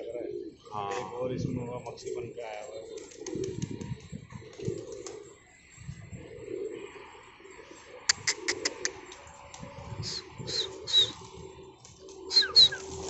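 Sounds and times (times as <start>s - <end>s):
pigeons cooing: 0.0s - 13.0s
downward sliding bird chirps: 10.0s - 11.3s, 12.3s - 13.0s.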